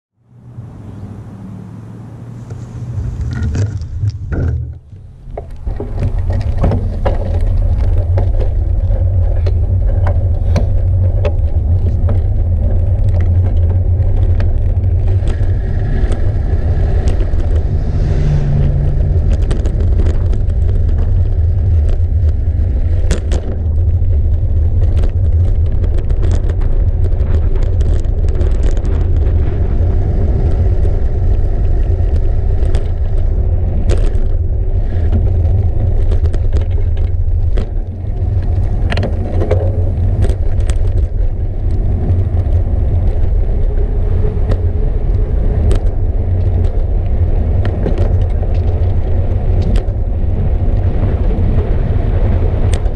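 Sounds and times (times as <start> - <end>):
wind rumbling on microphone: 0.2 - 52.9
bike rattles and clicks: 2.4 - 52.9.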